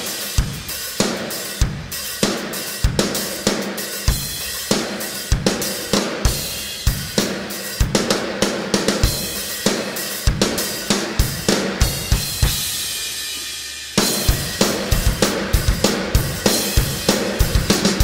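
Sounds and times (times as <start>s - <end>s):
drum kit playing a beat: 0.0s - 18.0s
cymbal crash: 11.8s - 17.0s.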